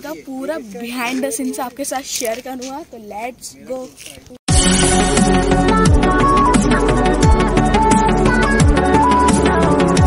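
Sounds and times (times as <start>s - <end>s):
deep bass sweeps: 4.5s - 10.0s
electronic music with fast beat: 4.5s - 10.0s.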